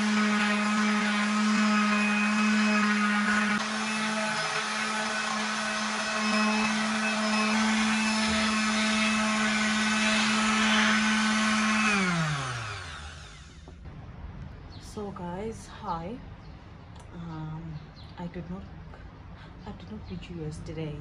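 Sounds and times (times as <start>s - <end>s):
electric blender running: 0.0s - 13.7s.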